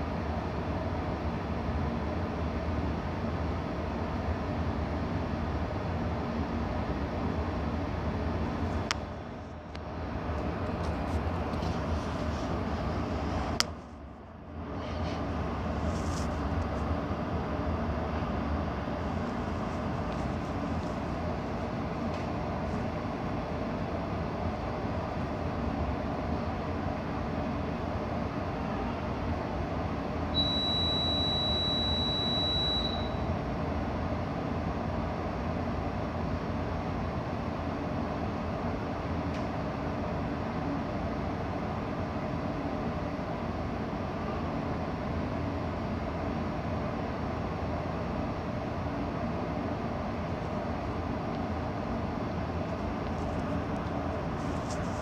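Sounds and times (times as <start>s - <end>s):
high clear tone: 30.4s - 33.3s.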